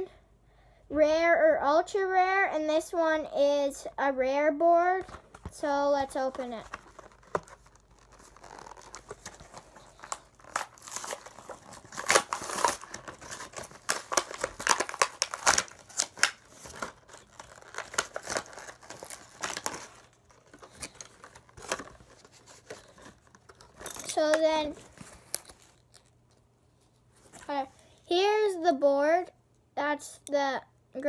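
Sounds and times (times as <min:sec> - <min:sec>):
packaging crinkling and tearing: 0:06.2 - 0:26.4.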